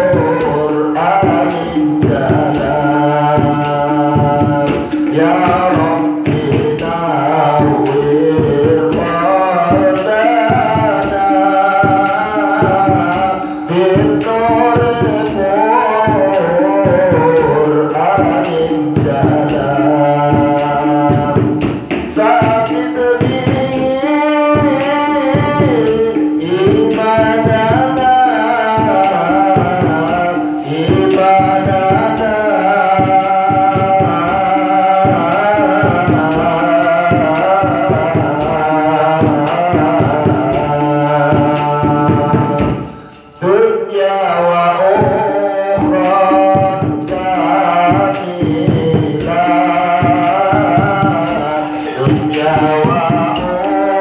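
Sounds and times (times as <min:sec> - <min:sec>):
hand percussion with jingles: 0:00.0 - 0:43.9, 0:45.8 - 0:54.0
man singing into a microphone: 0:00.0 - 0:54.0.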